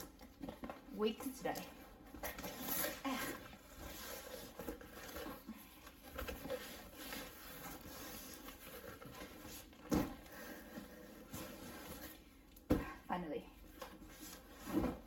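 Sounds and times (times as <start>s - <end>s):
cardboard box rustling and scraping: 1.8s - 12.2s, 13.8s - 15.0s.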